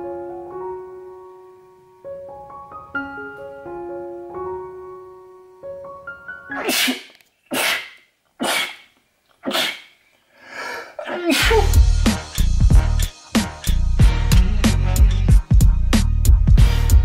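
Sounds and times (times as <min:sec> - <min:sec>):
soft piano music: 0:00.0 - 0:06.6
person sneezing: 0:06.5 - 0:11.8
music with heavy bass beat: 0:11.4 - 0:17.0.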